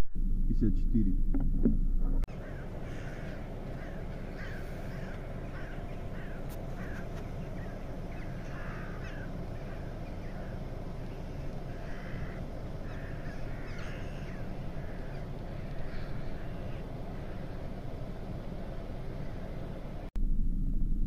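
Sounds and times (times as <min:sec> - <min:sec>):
steady low rumble: 0:00.0 - 0:21.0
crows cawing: 0:02.3 - 0:19.7.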